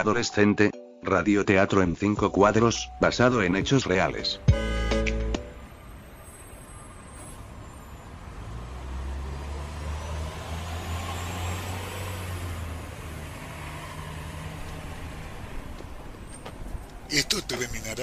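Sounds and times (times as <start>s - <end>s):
road traffic noise: 4.4s - 18.0s
vehicle engine rumbling: 5.5s - 18.0s.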